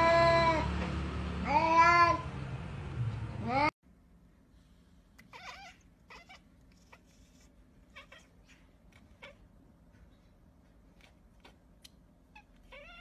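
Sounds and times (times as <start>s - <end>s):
cat chirping: 5.2s - 9.5s, 12.3s - 13.0s.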